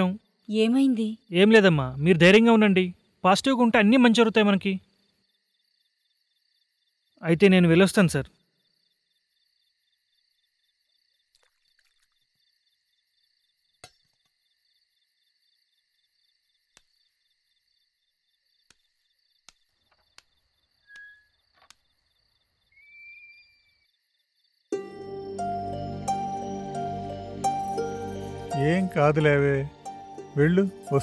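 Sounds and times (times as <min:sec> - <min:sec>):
crickets chirping: 0:00.0 - 0:31.0
whistle-like call: 0:20.8 - 0:21.3, 0:22.7 - 0:23.8
background music: 0:24.7 - 0:31.0.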